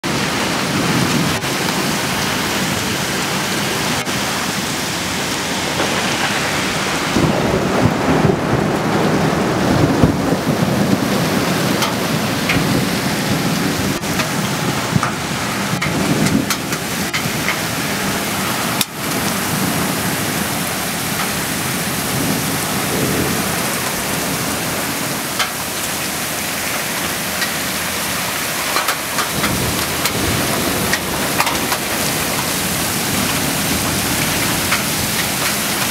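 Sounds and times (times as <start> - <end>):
heavy rain pouring: 0.0 - 35.9
low roll of thunder: 5.0 - 17.2, 21.7 - 26.2, 28.8 - 35.9.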